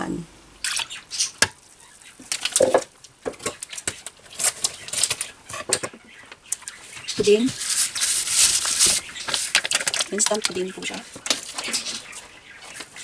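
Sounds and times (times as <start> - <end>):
kitchen taps clicks and rustles: 2.2 - 7.5, 9.2 - 12.1.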